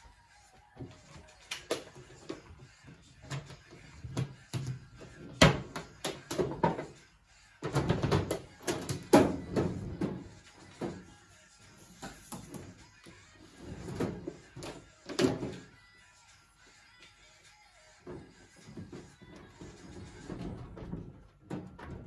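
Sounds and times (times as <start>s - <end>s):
plastic lids knocking and clattering: 3.2s - 7.0s, 7.6s - 11.1s, 18.0s - 22.0s.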